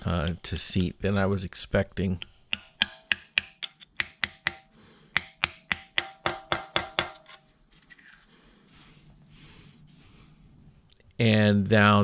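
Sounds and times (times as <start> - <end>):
hammer tapping metal rod: 2.2 - 7.4.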